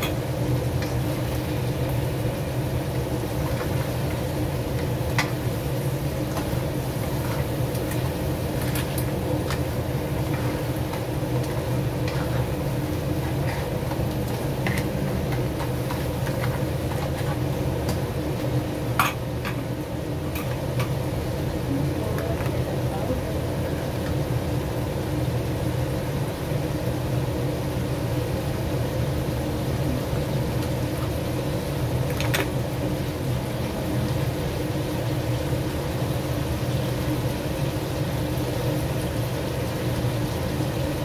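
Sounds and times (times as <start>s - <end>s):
low machine hum: 0.0s - 41.0s
seafood stirred in a frying pan: 0.0s - 41.0s
utensils clacking against pan: 13.2s - 18.0s, 19.0s - 19.7s.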